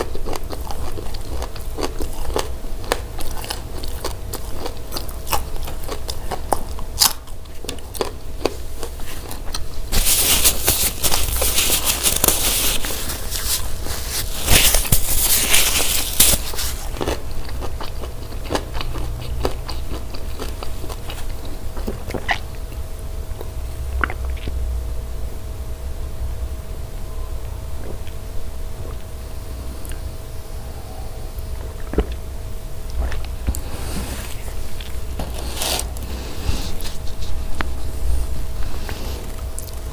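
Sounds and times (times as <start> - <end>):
chewing with mouth clicks: 0.0 - 24.6, 38.6 - 39.9
faint steady hum: 0.0 - 39.9
paper tissue rustling: 9.0 - 16.9.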